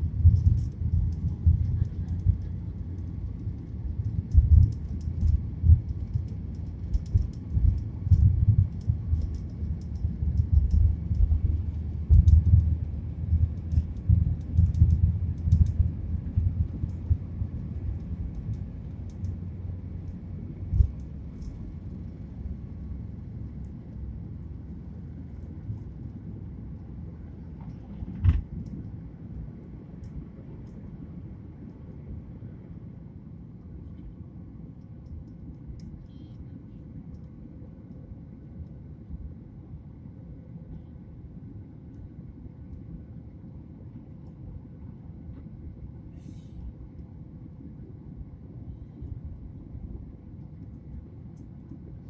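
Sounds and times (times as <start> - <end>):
faint light ticking rattles: 0.0 - 30.9
aircraft cabin low rumble: 0.0 - 52.0.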